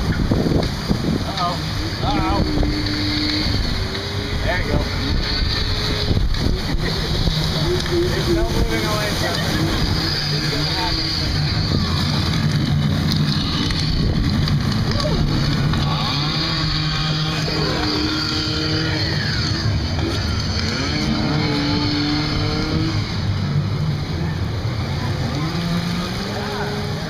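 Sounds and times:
low hum: 0.0s - 27.0s
rapids water rushing: 0.0s - 27.0s
riders' voices: 0.0s - 27.0s.

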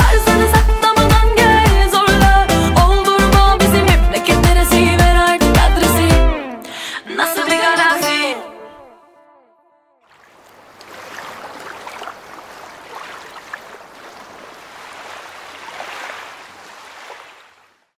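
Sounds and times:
water lapping and splashing: 10.1s - 18.0s.

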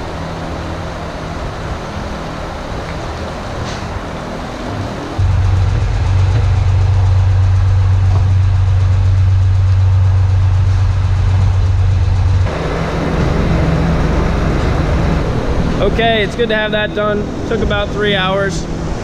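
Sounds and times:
engine idling: 0.0s - 18.2s
hissing drone: 0.0s - 19.0s.

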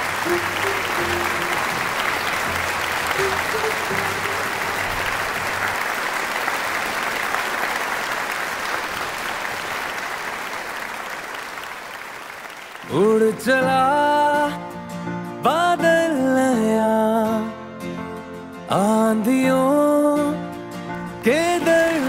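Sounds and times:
person singing song with instruments: 0.0s - 2.0s, 12.8s - 22.0s
applause: 0.0s - 13.6s, 21.2s - 22.0s.

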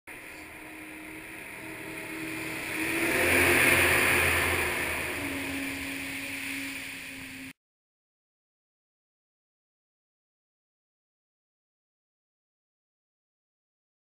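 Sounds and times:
water jet and spray rushing: 0.1s - 7.5s
jet boat passing: 0.1s - 7.6s.

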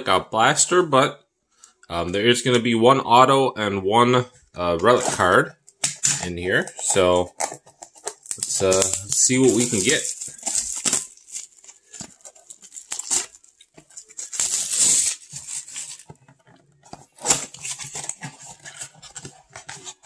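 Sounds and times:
plastic shrink wrap crinkling: 4.8s - 20.0s.

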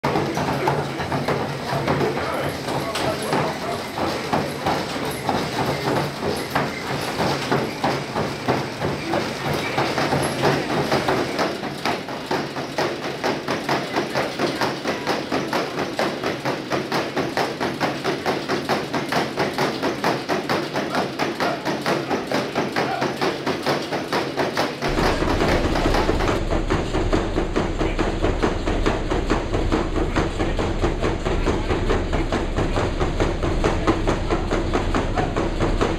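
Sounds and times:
hooves thudding on treadmill belt: 0.0s - 35.9s
low steady hum: 24.9s - 35.9s.

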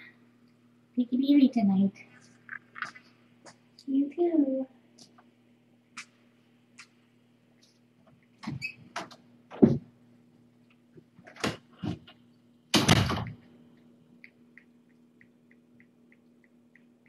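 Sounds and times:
door knocks and thumps: 9.5s - 9.9s, 12.8s - 13.4s.

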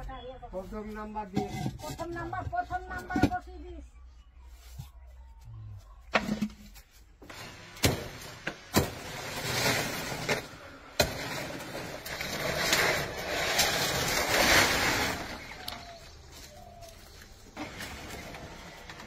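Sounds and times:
palm fronds rustling and crackling: 6.7s - 19.0s.

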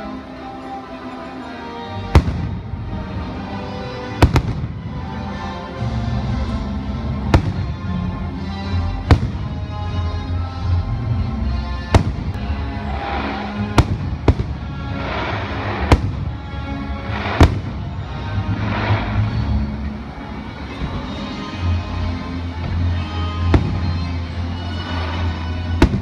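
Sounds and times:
music playing: 0.0s - 26.0s
fireworks bangs: 2.1s - 5.2s, 7.1s - 8.1s, 9.0s - 10.0s, 11.8s - 19.8s, 22.6s - 26.0s
fireworks crackle: 7.1s - 8.0s, 11.9s - 20.0s, 22.7s - 26.0s.

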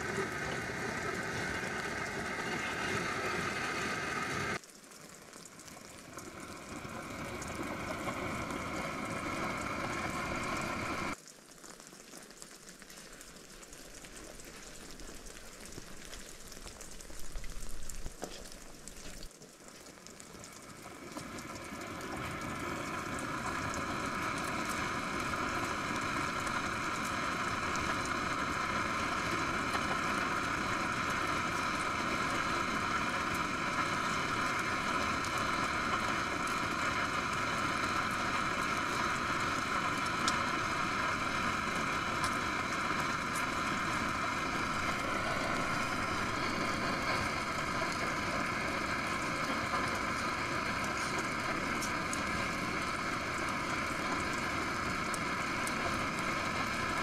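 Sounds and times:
gas burner hissing: 0.0s - 4.6s, 6.0s - 11.2s, 20.3s - 57.0s
pot bubbling at the boil: 0.0s - 57.0s.

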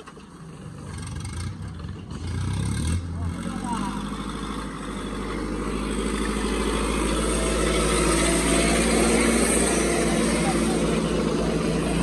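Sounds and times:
diesel tractor engines under load: 0.0s - 12.0s.

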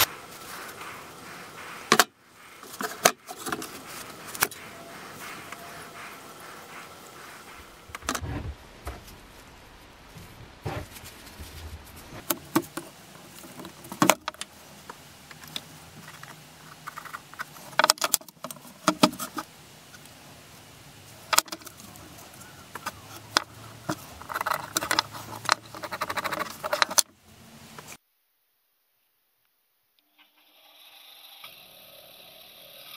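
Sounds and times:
pencil scratching on wood: 0.0s - 9.1s, 22.7s - 27.0s.

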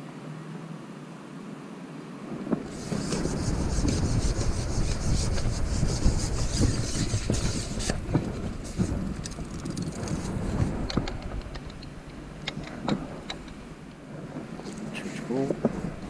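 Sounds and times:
fishing pole rubbing and scraping: 2.7s - 10.9s.

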